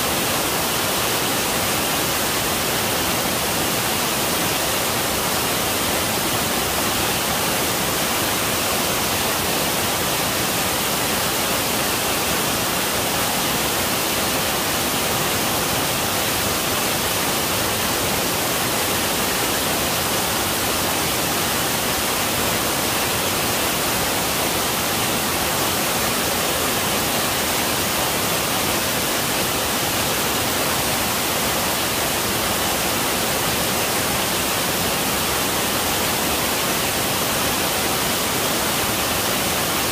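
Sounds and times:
waterfall rushing onto rocks: 0.0s - 39.9s.

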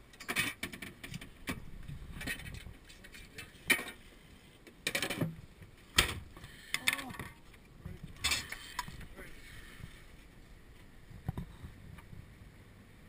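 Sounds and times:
metal poles clattering: 0.2s - 4.1s, 4.8s - 5.3s, 8.2s - 9.1s.

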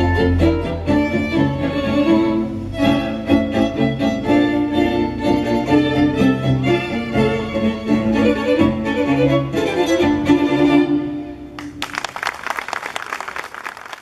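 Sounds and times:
string quartet playing: 0.0s - 11.8s
audience applause: 11.6s - 14.0s.

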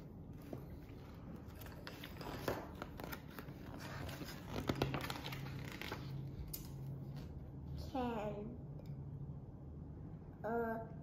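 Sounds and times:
book pages rustling: 0.2s - 7.4s
page flapping: 1.0s - 6.4s.

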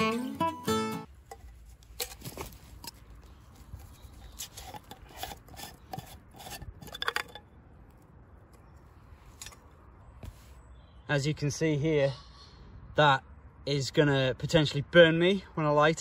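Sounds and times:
brass cap clicking and scraping: 1.2s - 9.8s.

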